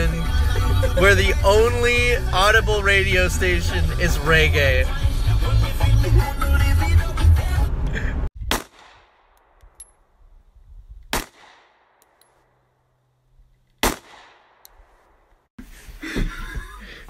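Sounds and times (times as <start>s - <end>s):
handgun shots echoing: 8.5s - 10.0s, 11.1s - 12.5s, 13.8s - 15.3s.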